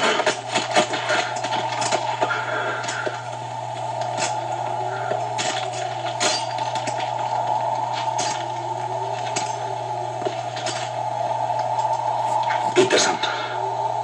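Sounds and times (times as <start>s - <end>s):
film soundtrack hum and hiss: 0.0s - 14.0s.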